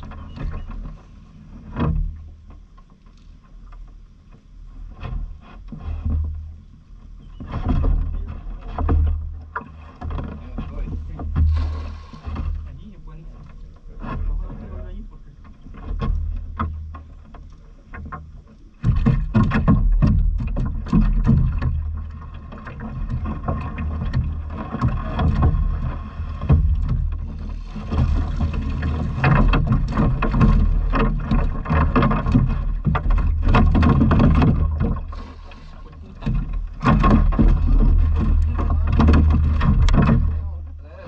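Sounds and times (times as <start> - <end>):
steady low rumble: 10.4 - 41.0.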